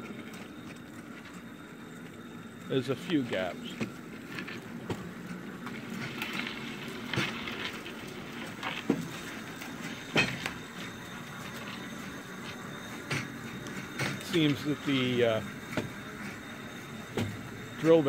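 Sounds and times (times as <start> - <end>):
rail kart rumbling on rails: 0.0 - 18.0
wheels clacking on rail joints: 0.0 - 18.0.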